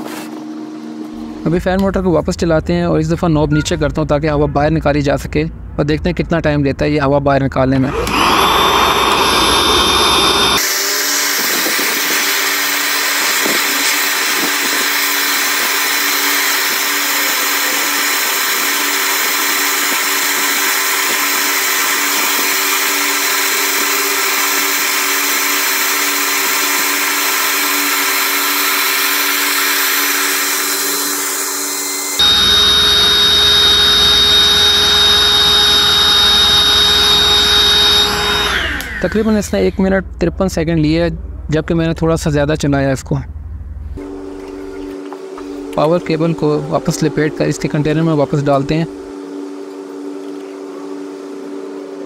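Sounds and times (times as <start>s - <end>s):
electric air pump whirring: 7.9s - 39.8s.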